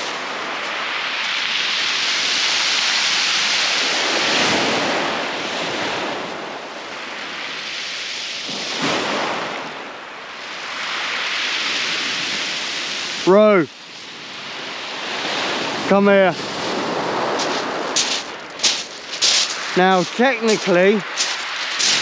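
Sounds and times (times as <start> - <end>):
surf breaking on shingle beach: 0.0 - 6.5, 8.4 - 9.8, 14.6 - 22.0.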